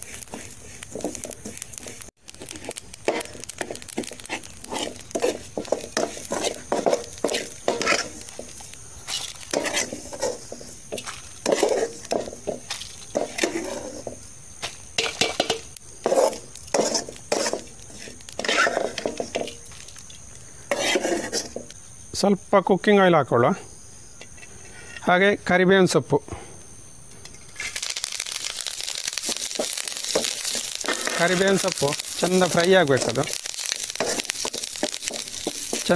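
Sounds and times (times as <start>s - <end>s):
metal ladle scraping a pan: 0.0s - 14.2s, 15.0s - 19.6s, 20.6s - 21.6s, 33.0s - 35.9s
oil sizzling: 0.0s - 21.8s, 27.2s - 35.9s.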